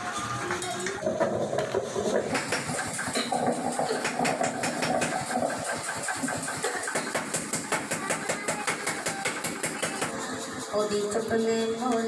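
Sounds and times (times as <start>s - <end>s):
machine knocking: 0.9s - 10.2s.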